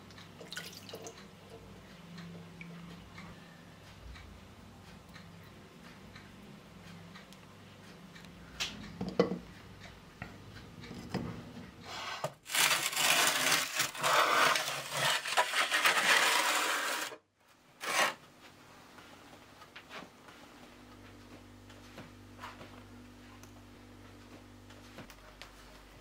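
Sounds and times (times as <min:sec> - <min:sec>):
metal tray scraping oven floor: 0:11.9 - 0:17.2, 0:17.8 - 0:18.2.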